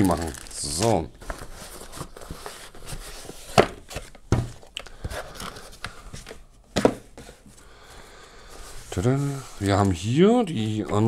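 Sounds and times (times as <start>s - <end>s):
plastic bag rustling: 0.0s - 4.7s.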